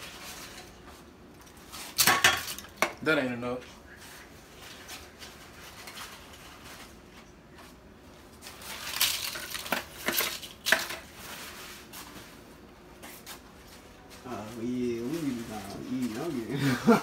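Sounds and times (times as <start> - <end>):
kitchen items rustling and clattering: 0.0 - 3.2, 3.8 - 17.0.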